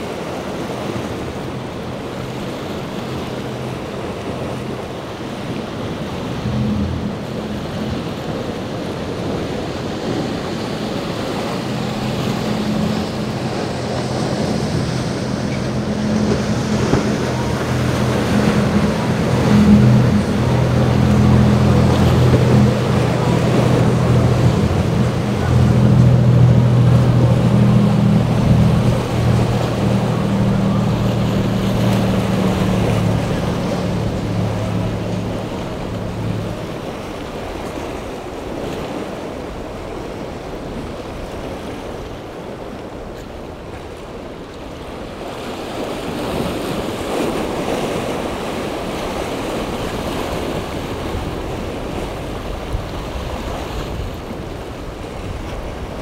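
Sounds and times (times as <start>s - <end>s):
wind on microphone: 0.0s - 42.0s
boat engines droning: 0.0s - 56.0s
waves and hull spray: 0.0s - 56.0s.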